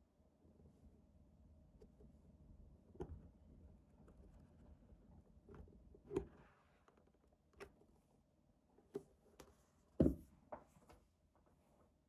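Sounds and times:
book set down on table: 10.0 - 10.7.

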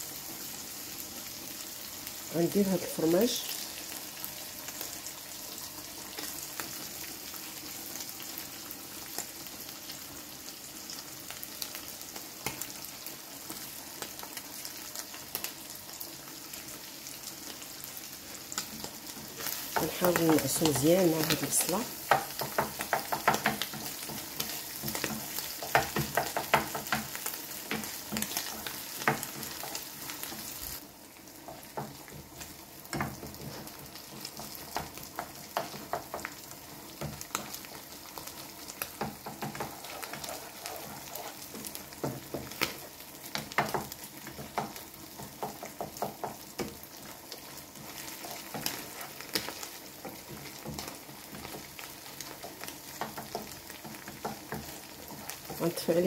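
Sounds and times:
food sizzling in frying pan: 0.0 - 56.0
spatula scraping pan: 38.9 - 44.7.

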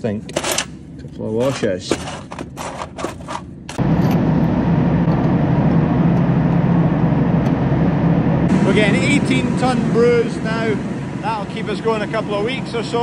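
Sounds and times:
metal washers clinking in drawer: 0.3 - 0.8, 1.4 - 3.8
engine droning: 3.6 - 13.0.

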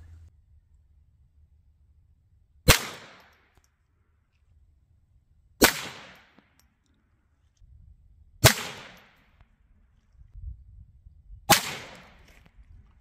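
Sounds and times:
rifle shots with echo: 2.7 - 3.4, 5.6 - 6.4, 8.4 - 9.2, 11.5 - 12.3.

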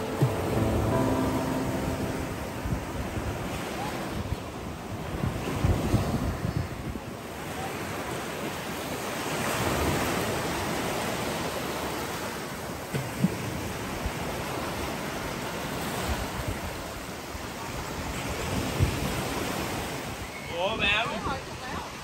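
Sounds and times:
sea waves washing onto beach: 0.0 - 22.0
wind buffeting microphone: 2.5 - 7.4.

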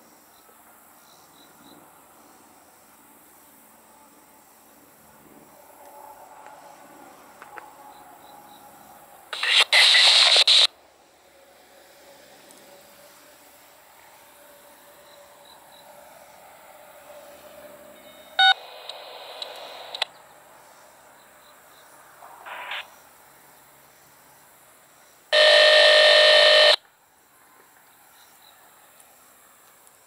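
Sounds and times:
static hiss: 9.3 - 10.7, 18.4 - 20.1, 22.4 - 23.1, 25.0 - 26.8
loud buzzy electronic tone: 25.4 - 26.8
sharp electronic beep: 25.4 - 26.8.

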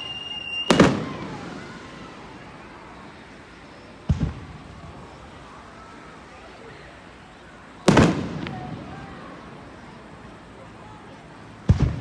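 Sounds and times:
firework launch thump: 4.0 - 4.5, 11.7 - 12.0.

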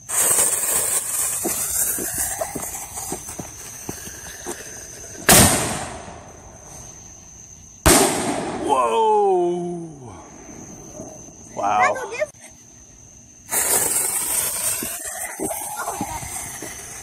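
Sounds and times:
firework fuse hissing: 0.0 - 7.1, 13.3 - 17.0
small crackles: 0.1 - 5.2
loud firework boom: 5.2 - 6.3, 7.8 - 8.8.

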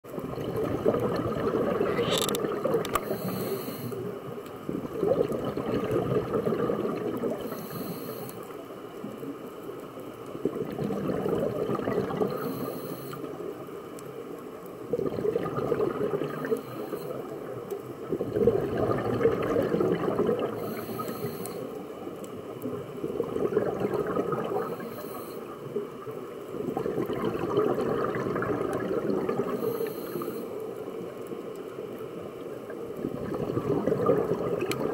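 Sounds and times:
bubbling exhalation underwater: 0.2 - 3.0, 4.7 - 7.5, 10.5 - 12.4, 14.9 - 16.7, 18.1 - 20.7, 23.0 - 24.9, 26.6 - 29.7, 33.0 - 34.9
regulator inhalation hiss: 3.0 - 4.0, 7.5 - 8.4, 12.4 - 13.3, 20.6 - 21.7, 29.6 - 30.6.

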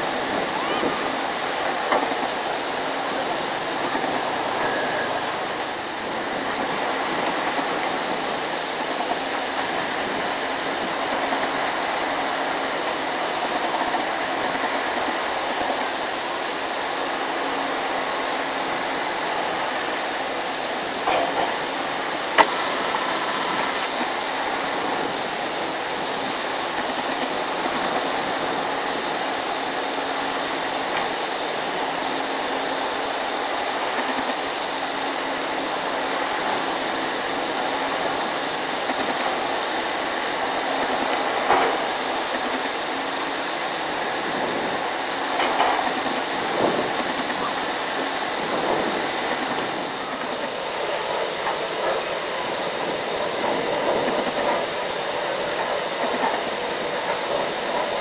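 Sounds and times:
excavator engine and hydraulics: 0.0 - 58.0.

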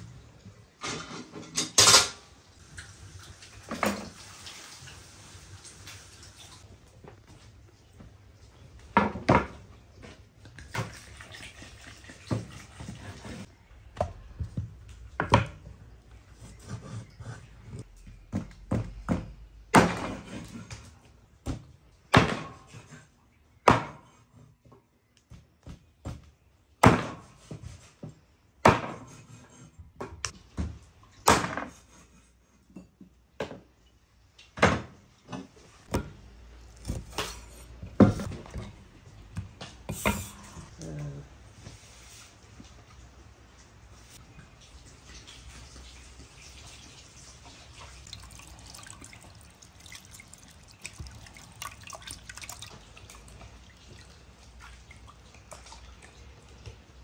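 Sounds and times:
water poured over hands: 44.6 - 56.3.

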